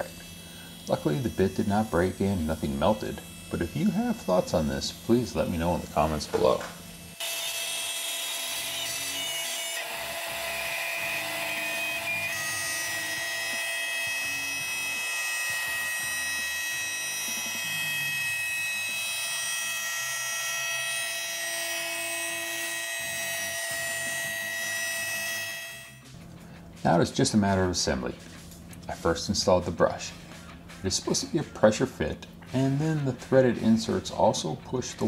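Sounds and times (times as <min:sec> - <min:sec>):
cutting hiss: 0:00.0 - 0:05.9
router spindle whining: 0:00.0 - 0:26.1.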